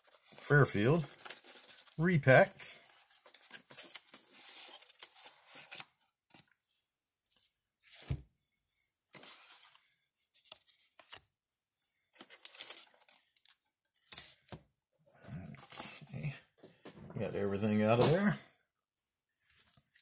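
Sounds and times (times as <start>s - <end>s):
cards rustling: 0.0s - 6.5s, 12.2s - 14.6s.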